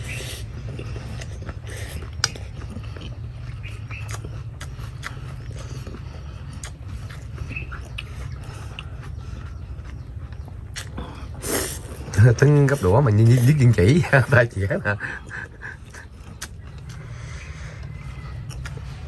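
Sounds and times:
person slurping and chewing noodles: 0.0 - 13.8
steady low hum: 0.0 - 19.0.

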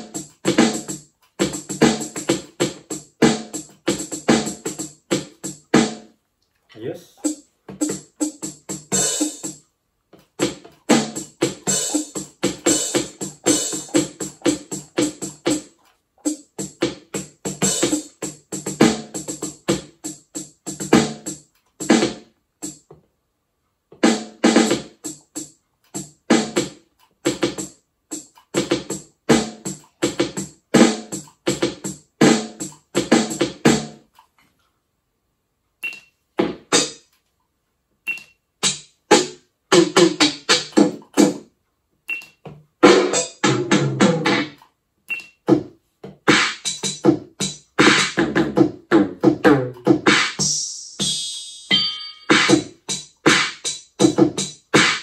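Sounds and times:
electronic drum hits: 46.3 - 55.0.

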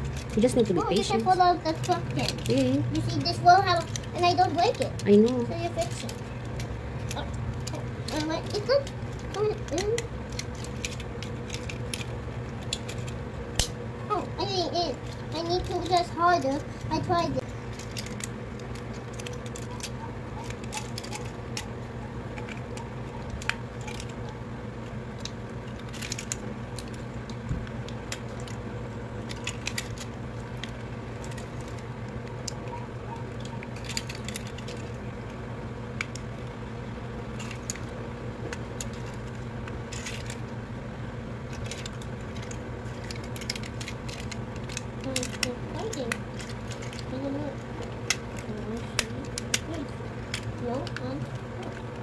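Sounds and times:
plastic toy clicks and snaps: 0.0 - 13.8, 17.8 - 21.7, 41.5 - 52.0
steady low hum: 0.0 - 52.0.

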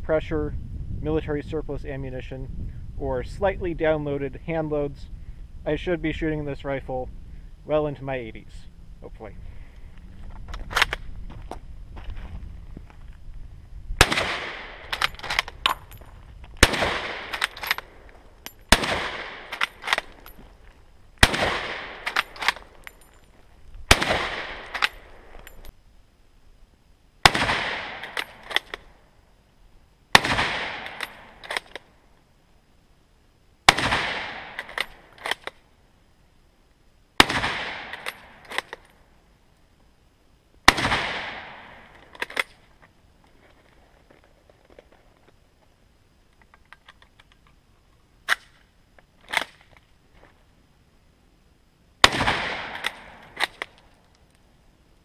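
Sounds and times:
rifle shots with echo: 14.0 - 15.5, 16.6 - 18.0, 18.7 - 20.3, 21.2 - 22.8, 23.9 - 25.4, 27.2 - 28.8, 30.1 - 31.6, 33.7 - 35.0, 37.2 - 38.7, 40.7 - 41.9, 52.0 - 53.6.

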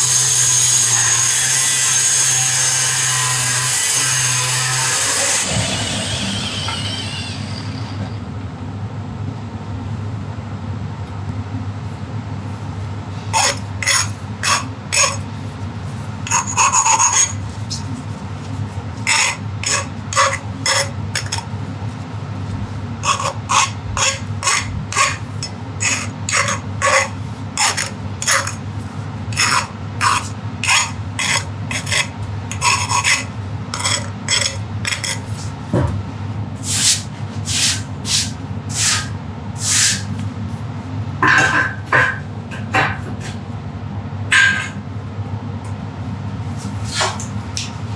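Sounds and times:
file rasping on steel: 0.0 - 8.0, 19.1 - 21.4, 23.0 - 28.6, 29.4 - 35.3, 36.7 - 40.1.

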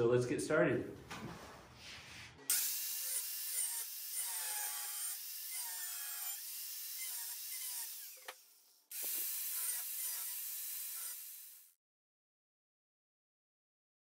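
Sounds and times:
angle grinder grinding steel: 2.4 - 11.7.

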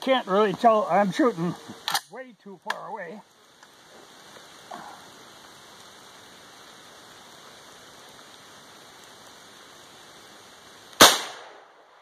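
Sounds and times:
steady hiss: 0.0 - 12.0
rifle shot with ringing tail: 11.0 - 11.6.

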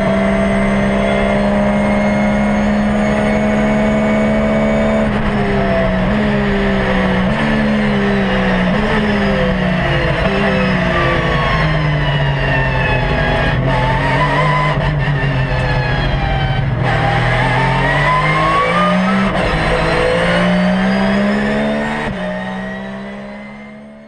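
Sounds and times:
racing car engine revving: 0.0 - 24.0.

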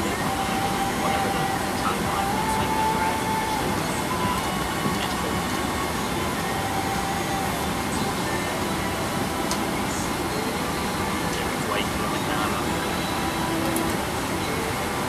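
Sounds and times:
aircraft cabin engine rush: 0.0 - 15.0
faint steady whine: 0.0 - 15.0.

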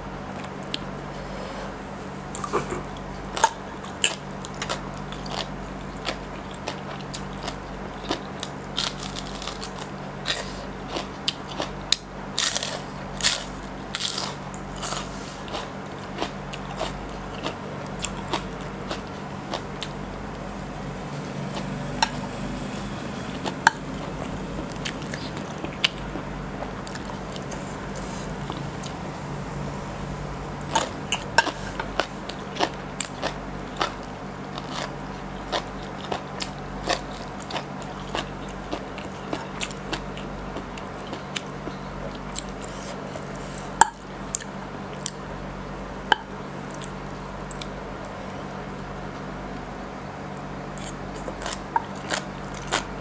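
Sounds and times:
low steady hum: 0.0 - 53.0
wet crunchy chewing: 2.3 - 29.2, 30.5 - 45.2, 50.8 - 53.0.

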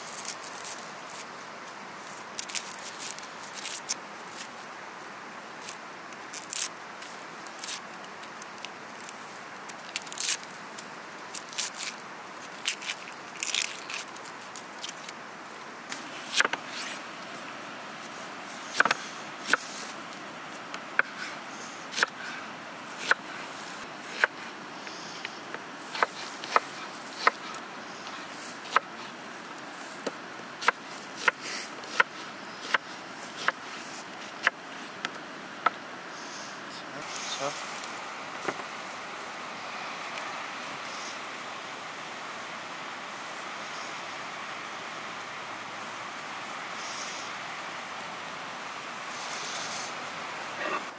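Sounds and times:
onion skin crackling and rustling: 0.0 - 1.4, 2.0 - 4.6, 5.6 - 15.2.

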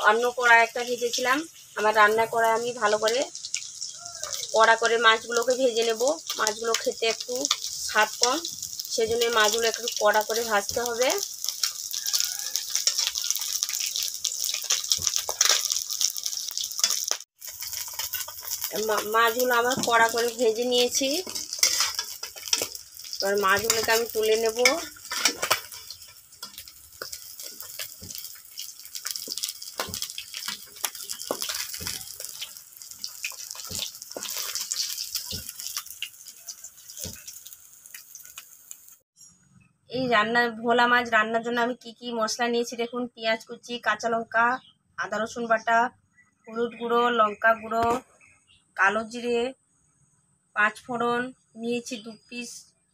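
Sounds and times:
fish frying in hot oil: 0.0 - 39.0.

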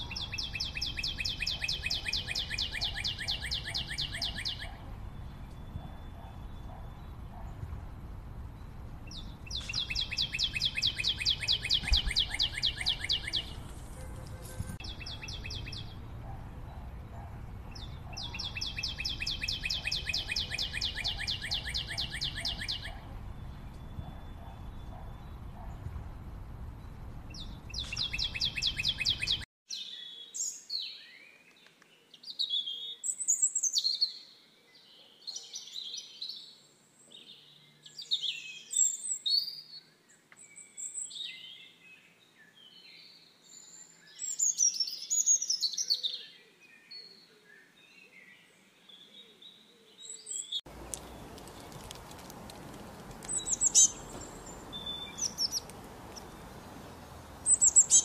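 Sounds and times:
robin singing: 0.0 - 7.5, 8.5 - 13.7, 14.8 - 25.8, 26.8 - 31.3, 47.9 - 58.0
sharp bird chirps: 0.0 - 7.5, 8.6 - 25.8, 26.8 - 29.5, 53.3 - 56.7, 57.4 - 58.0.

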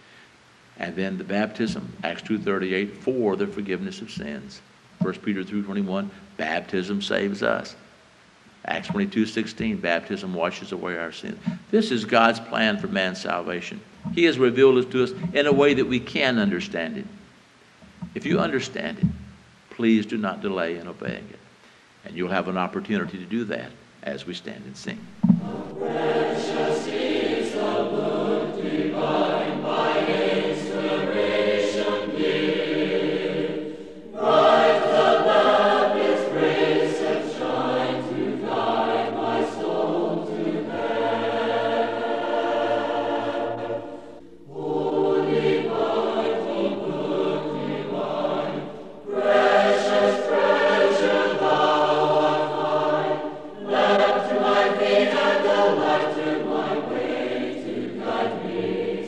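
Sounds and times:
congregation singing a hymn: 0.8 - 7.7, 25.0 - 59.0.

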